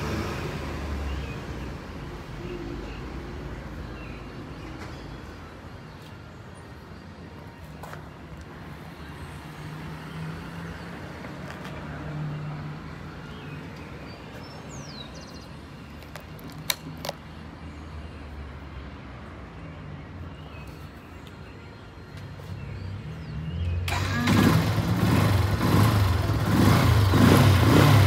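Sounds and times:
bird chirp: 13.2s - 18.1s.

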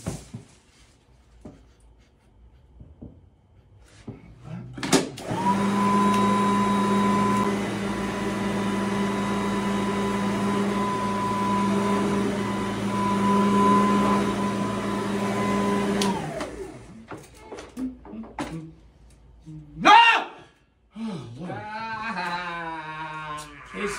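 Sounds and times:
vacuum cleaner motor humming: 5.2s - 17.1s
vacuum cleaner switch click: 15.9s - 16.6s.

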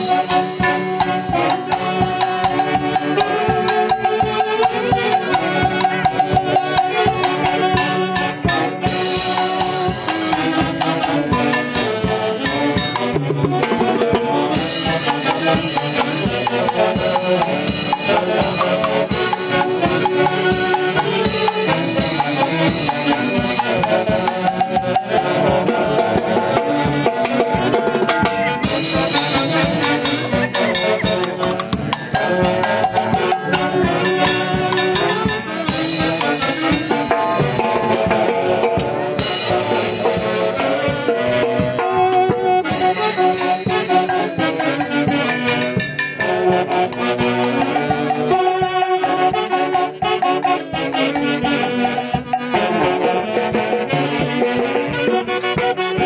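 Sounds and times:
timbales cowbell and cymbal beat: 0.0s - 13.3s, 14.5s - 25.5s, 28.0s - 40.9s, 42.7s - 46.7s
saxophones playing melody: 0.0s - 56.0s.

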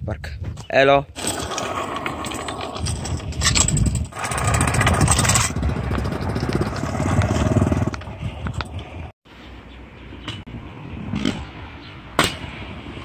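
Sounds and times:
scooter wheels rolling on asphalt: 1.2s - 9.1s.

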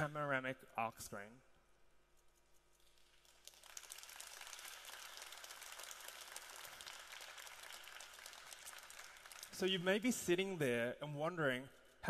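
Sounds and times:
faint audience applause: 3.2s - 10.0s.

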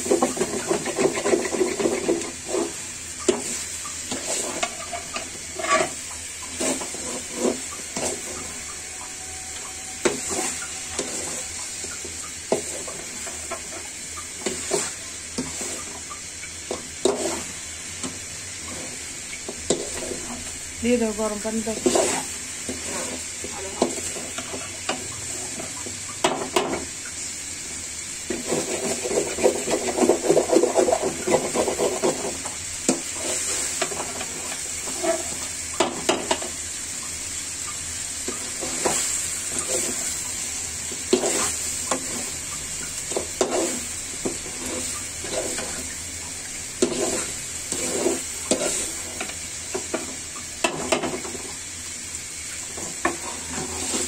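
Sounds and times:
metal spatula scraping a pan: 0.0s - 26.9s, 28.3s - 36.6s, 38.2s - 42.4s, 43.0s - 51.4s, 52.6s - 54.0s
frying sizzle: 0.0s - 54.0s.

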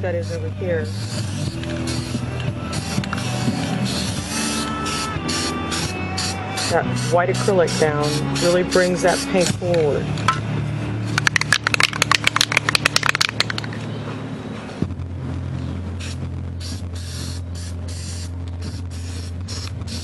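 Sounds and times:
short spray bursts: 0.8s - 9.5s, 16.0s - 20.0s
spray can ball rattling: 0.8s - 10.0s, 11.0s - 13.8s, 16.0s - 20.0s.

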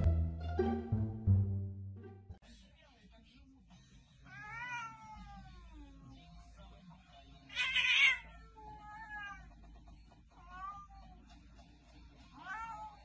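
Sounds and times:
wavering cat meows: 4.3s - 5.8s, 7.5s - 9.5s, 12.4s - 13.0s
cat hissing: 7.5s - 9.5s.

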